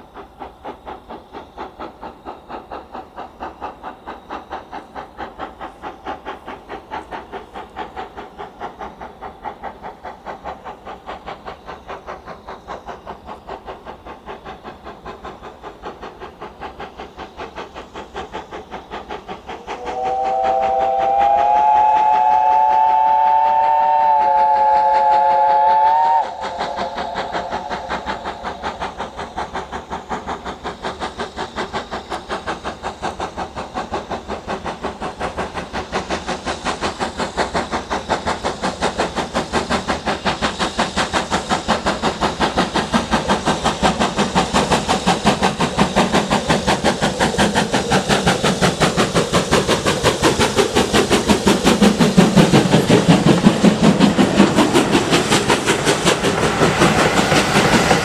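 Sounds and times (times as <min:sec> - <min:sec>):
steam locomotive exhaust beats: 0:00.0 - 0:58.0
steam whistle long blast: 0:19.8 - 0:28.1.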